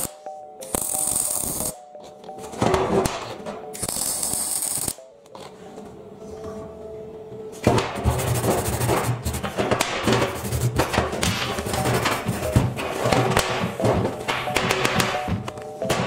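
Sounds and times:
welding arc crackling: 0.0 - 1.8, 3.8 - 5.0
background music: 0.0 - 16.0.

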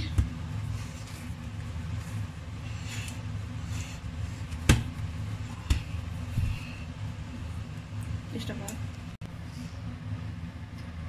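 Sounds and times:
hands kneading dough: 0.0 - 8.8
steady low hum: 0.0 - 11.0.

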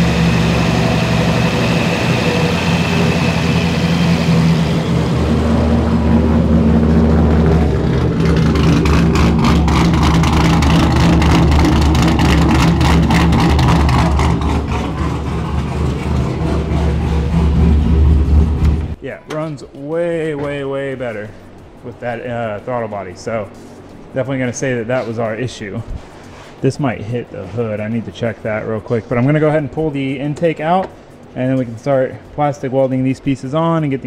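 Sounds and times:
engine idling: 0.0 - 19.0
exhaust pulses: 0.0 - 19.0.

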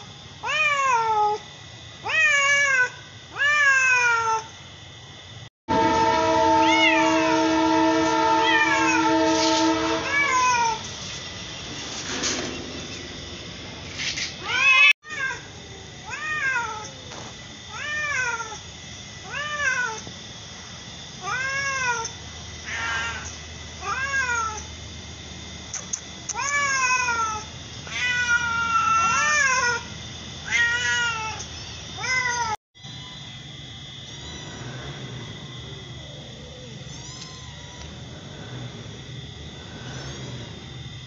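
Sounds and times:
cat meowing: 6.6 - 7.3, 8.4 - 9.0, 10.0 - 10.8, 36.0 - 38.9.

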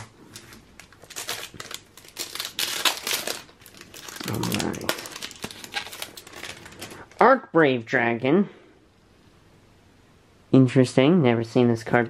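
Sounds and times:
foil pack crinkling: 0.0 - 7.2.

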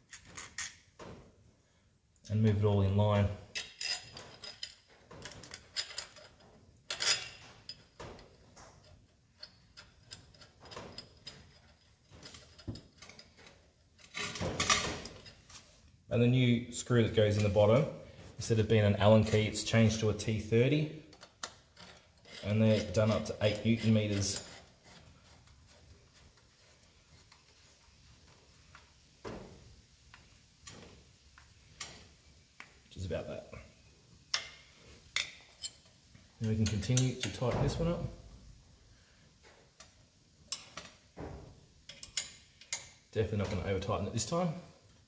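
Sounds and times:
metal clatter: 3.5 - 15.6.

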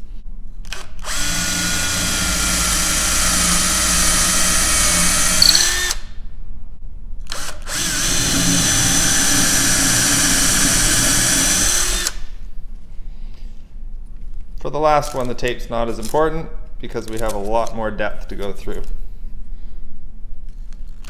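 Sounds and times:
cordless drill whining: 0.7 - 6.1, 7.3 - 12.3.

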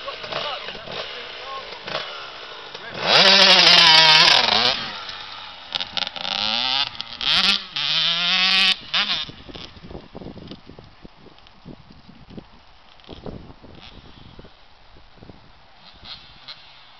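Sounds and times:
dirt bike engine revving: 0.0 - 10.0, 13.0 - 14.6, 15.8 - 16.9.

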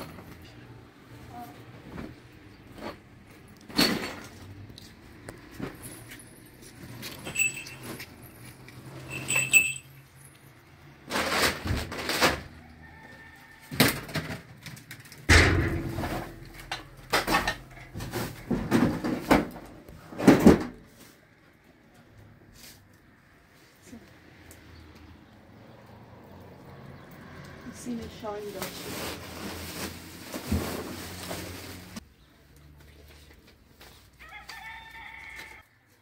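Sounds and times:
bags and packages rustling: 1.2 - 9.8, 27.8 - 32.0
small metallic clinks: 6.0 - 10.6
heavy thud: 15.3 - 16.6.

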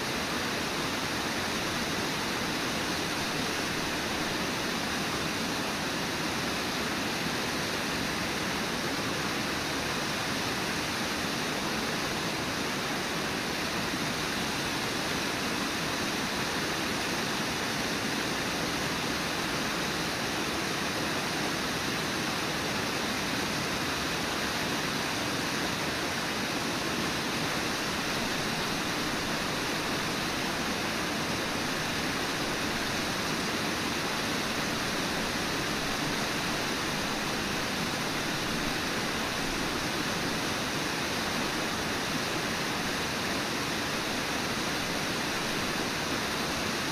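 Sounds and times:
waterfall rushing: 0.0 - 46.9.

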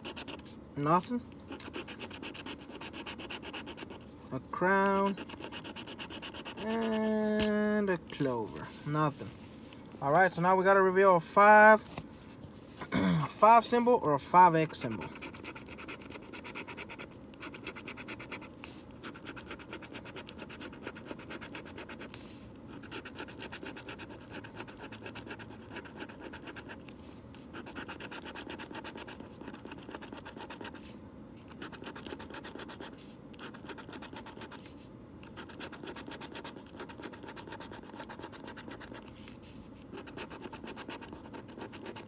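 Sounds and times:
coin scratching a ticket: 0.0 - 0.4, 1.6 - 4.0, 5.0 - 7.1, 14.5 - 22.1, 22.7 - 26.8, 27.5 - 30.8, 31.5 - 34.6, 35.3 - 39.1, 39.9 - 42.0.

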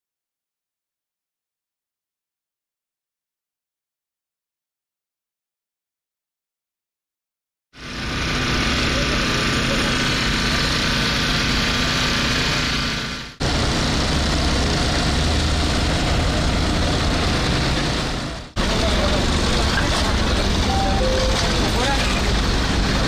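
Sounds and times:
voices of workers: 7.8 - 13.4, 15.9 - 23.0
engine running: 7.8 - 23.0.

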